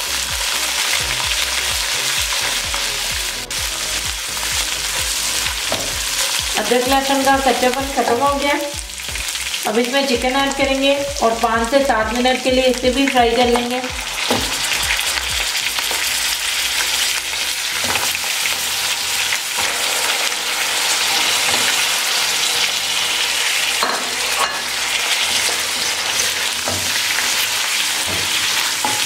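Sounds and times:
chicken sizzling in hot oil: 0.0s - 29.0s
spatula knocking and scraping pan: 5.6s - 7.0s, 13.4s - 15.1s, 23.8s - 27.4s, 28.0s - 29.0s.

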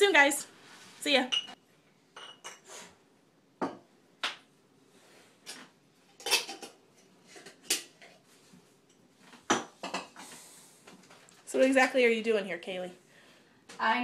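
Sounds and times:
glass jars clinking: 1.3s - 1.6s, 2.2s - 2.6s.

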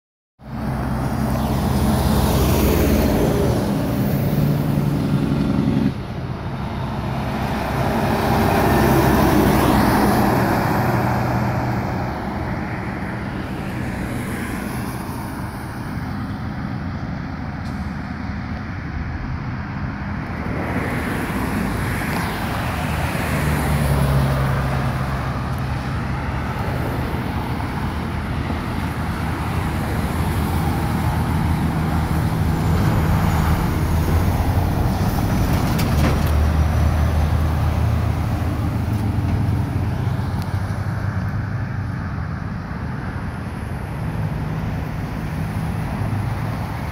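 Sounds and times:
cars passing: 0.4s - 46.9s
truck diesel engine drone: 0.4s - 46.9s.

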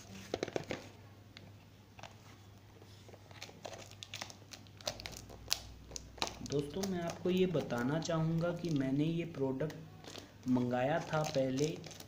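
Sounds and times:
packaging rustling: 3.0s - 9.0s, 10.0s - 12.0s.

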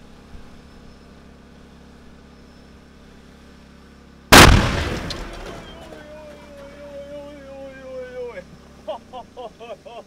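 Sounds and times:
faint steady hum: 0.0s - 10.0s
tyre bursting loud blast: 4.3s - 5.9s.

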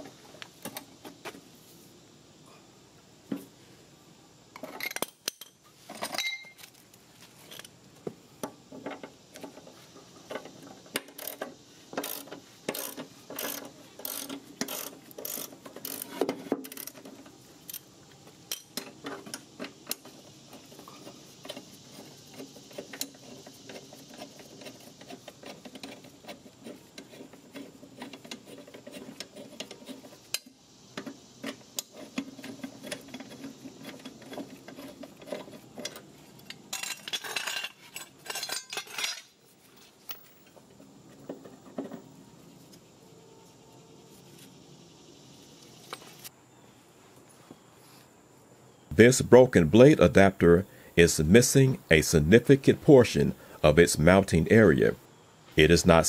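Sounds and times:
ratchet wrench clicking: 11.0s - 17.0s
small metal parts clinking: 35.2s - 40.5s.

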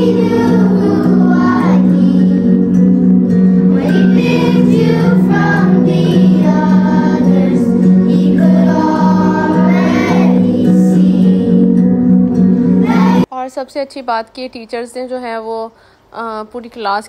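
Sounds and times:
children singing: 0.0s - 2.7s, 3.7s - 11.7s, 12.8s - 13.3s
backing track chords: 0.0s - 13.3s.

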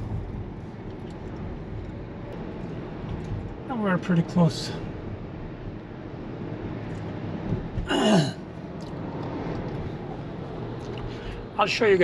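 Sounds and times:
tyre and road noise in car: 0.0s - 12.0s
person short vocal sound: 7.9s - 8.4s.

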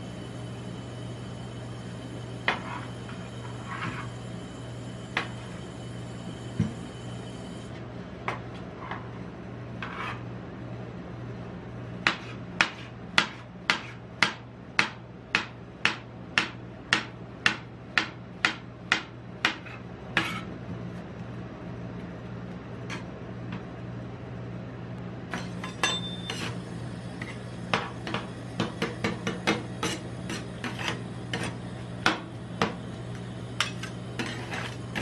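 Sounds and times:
low machine hum: 0.0s - 35.0s
knife chopping on metal plate: 12.1s - 17.1s.

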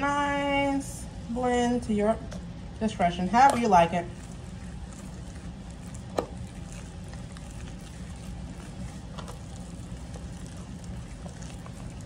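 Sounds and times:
steady low hum: 0.0s - 12.0s
whisk squishing and scraping batter: 3.3s - 12.0s.

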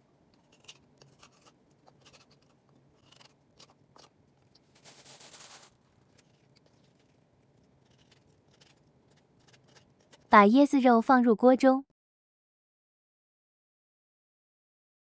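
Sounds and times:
spoon scraping coconut shell: 0.4s - 4.2s, 4.8s - 10.3s.

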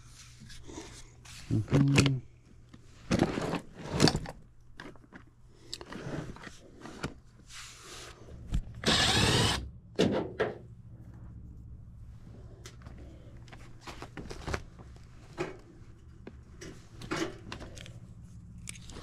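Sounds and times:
cordless drill running: 8.8s - 9.7s.

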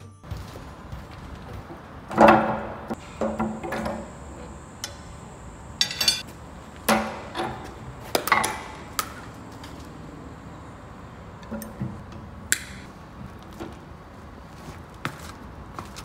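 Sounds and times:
metal tools clanking: 5.8s - 6.3s.

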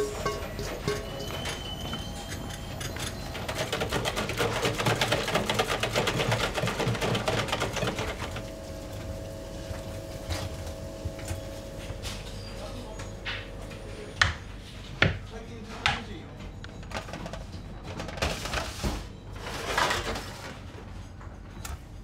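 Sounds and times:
dough mixer clattering: 2.4s - 8.5s
motor hum: 7.6s - 14.4s.

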